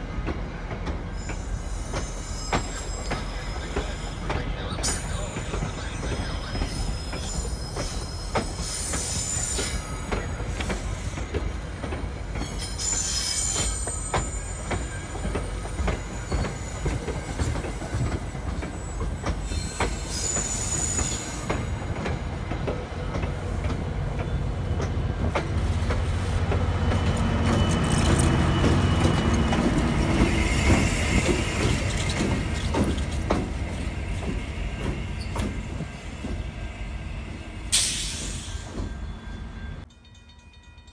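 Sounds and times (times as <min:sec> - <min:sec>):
train rolling rumble: 0:00.0 - 0:40.9
train wheels clacking over rail joints: 0:00.2 - 0:36.4
high-pitched wheel squeals: 0:12.3 - 0:21.6, 0:30.2 - 0:32.8.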